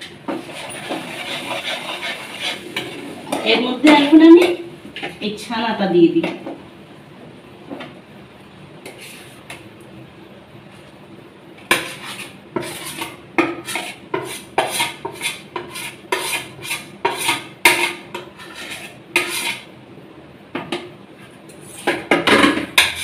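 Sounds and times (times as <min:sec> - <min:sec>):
spoon scraping a plate: 0:00.3 - 0:04.6, 0:08.8 - 0:09.6, 0:11.7 - 0:19.7, 0:21.5 - 0:23.0.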